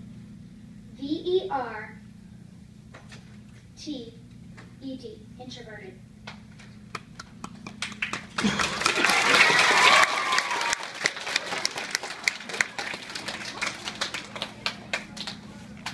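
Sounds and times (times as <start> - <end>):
children clapping: 6.9 - 15.9.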